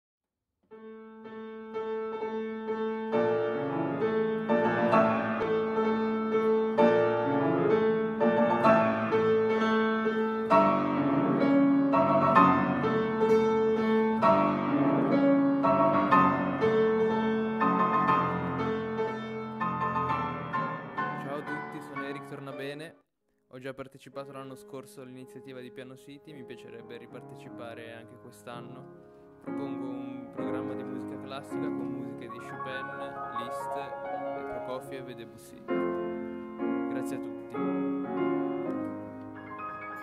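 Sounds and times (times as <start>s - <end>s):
solo piano classical piece: 0.7s - 22.7s, 26.7s - 40.0s.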